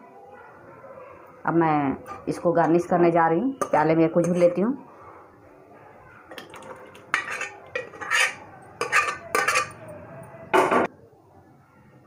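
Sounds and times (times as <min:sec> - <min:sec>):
metal ladle scraping a pot: 0:03.5 - 0:04.6, 0:06.6 - 0:09.9.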